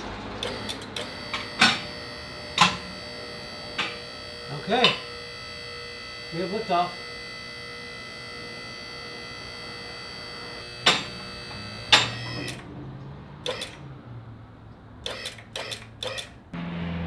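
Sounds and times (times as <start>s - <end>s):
hydraulic pump whine: 0.0s - 14.0s, 15.0s - 17.0s
loud sharp clicks: 13.4s - 13.8s, 15.0s - 16.4s.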